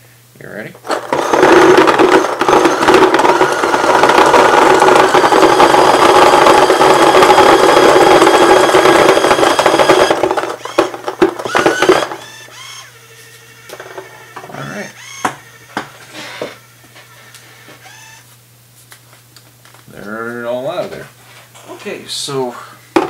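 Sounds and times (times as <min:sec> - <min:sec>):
hopper motor whine: 0:00.8 - 0:18.4
paintballs rattling: 0:00.9 - 0:12.3.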